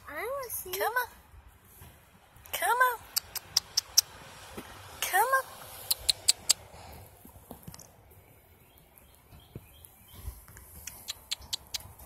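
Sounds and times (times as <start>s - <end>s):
mouth clicks: 3.1s - 4.1s, 5.8s - 6.7s, 10.7s - 12.0s.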